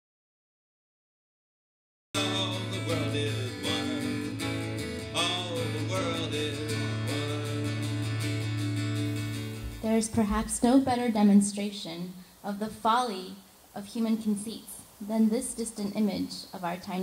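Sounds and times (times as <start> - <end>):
man singing: 2.2 - 8.4
acoustic guitar strumming: 2.2 - 10.8.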